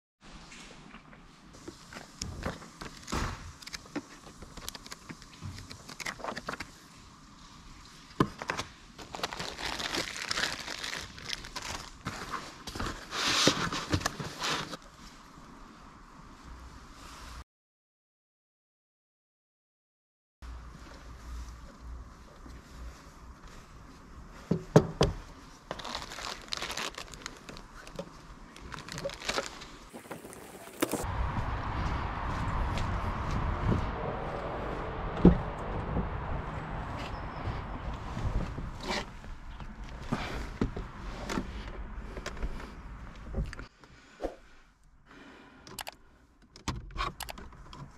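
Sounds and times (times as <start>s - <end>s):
plastic packaging crinkling: 9.0s - 12.4s, 25.7s - 31.0s
plastic bag rustling: 9.0s - 14.8s, 25.6s - 31.1s
scattered clicks: 45.7s - 47.5s.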